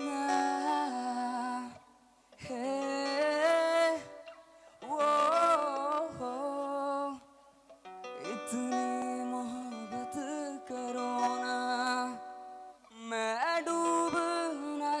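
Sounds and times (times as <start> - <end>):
acoustic guitar: 0.0 - 15.0.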